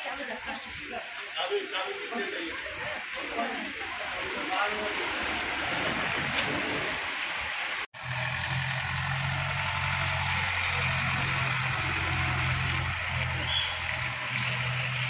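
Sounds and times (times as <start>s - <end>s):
street noise: 0.0s - 15.0s
engine idling: 8.0s - 15.0s.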